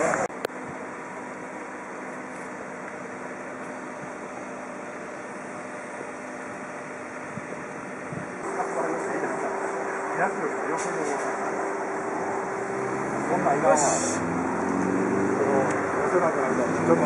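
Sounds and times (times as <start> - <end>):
steady mechanical hum: 0.0 - 17.0
faint held tones: 8.4 - 13.8.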